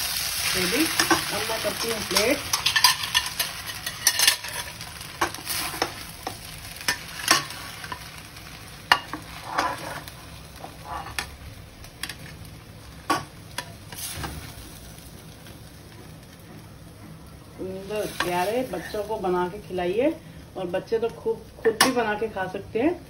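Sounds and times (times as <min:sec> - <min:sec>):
noodles sizzling in a wok: 0:00.0 - 0:23.0
spatula knocking and scraping wok: 0:00.6 - 0:11.4, 0:13.0 - 0:14.6.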